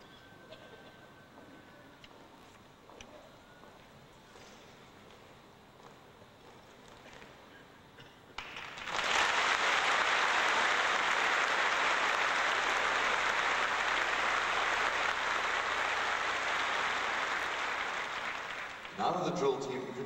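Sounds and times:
audience applauding: 8.4 - 20.0.

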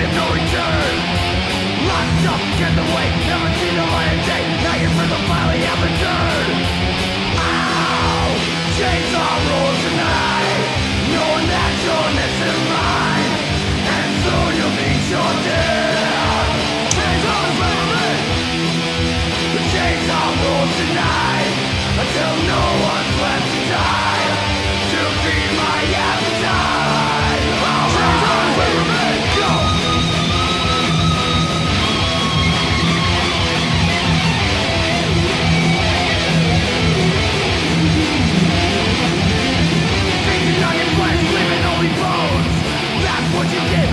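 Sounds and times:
bass guitar: 0.0 - 43.9
distorted electric guitars: 0.0 - 43.9
shouted vocals: 1.8 - 18.4, 19.4 - 31.6, 40.0 - 43.9.

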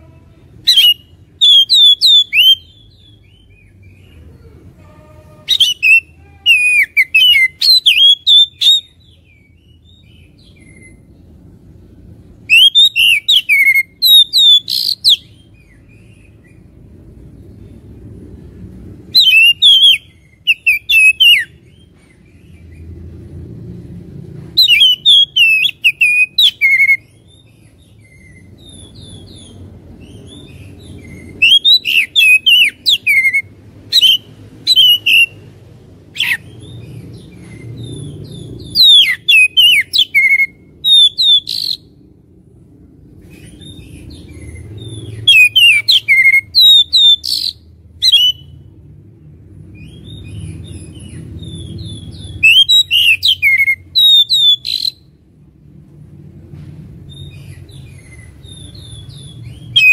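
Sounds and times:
low background rumble: 0.0 - 59.9
bird singing whistles and chatter: 0.6 - 4.0, 4.9 - 11.1, 12.4 - 16.4, 19.1 - 21.9, 24.6 - 35.4, 36.2 - 41.9, 43.4 - 48.6, 49.8 - 55.1, 57.1 - 59.9.

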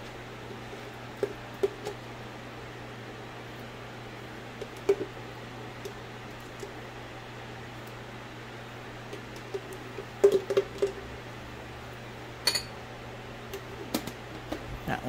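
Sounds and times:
electric fan humming: 0.0 - 15.0
metal spoon clinking on container: 12.4 - 12.7.

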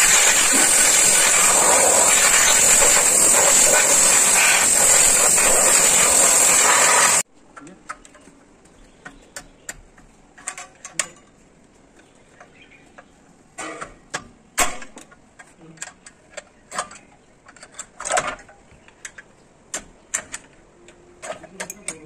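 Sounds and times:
metallic clicks of hand tools: 13.8 - 22.0.

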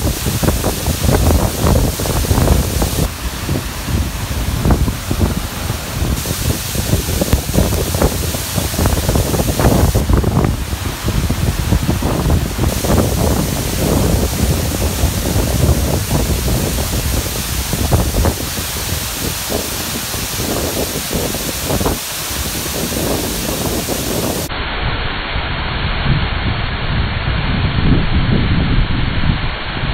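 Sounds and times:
waterfall rushing: 0.0 - 24.5
wind buffeting microphone: 0.0 - 24.5, 26.1 - 29.9.

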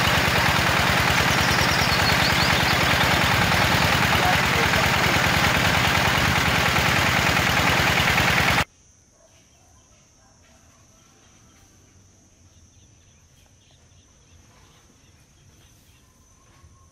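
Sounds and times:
small gasoline engine running: 0.0 - 8.7
faint bird chirps: 1.1 - 3.2.

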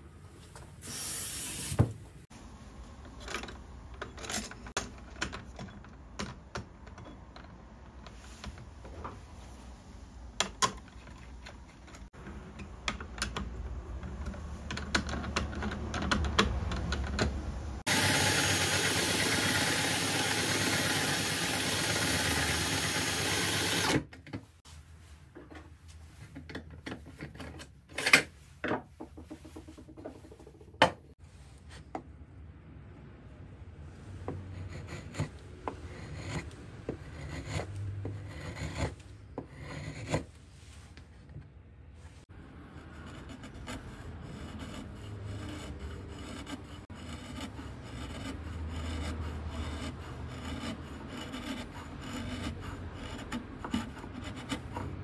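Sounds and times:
tools clicking and knocking: 3.0 - 9.1, 10.4 - 17.5
whetstone grinding chisel: 42.7 - 55.0.

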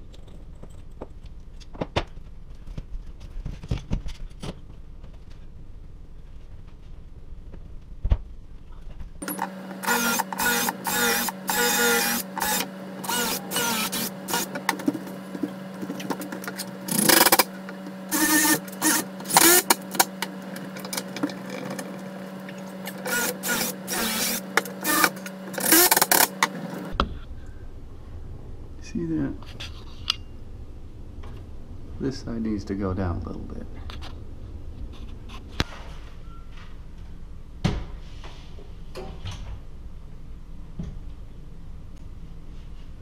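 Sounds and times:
steady low hum: 0.0 - 43.0
drill clicks: 9.2 - 14.9, 15.9 - 21.9, 22.8 - 26.6
cordless drill driving screws: 9.3 - 14.6, 18.1 - 20.2, 22.8 - 26.5.

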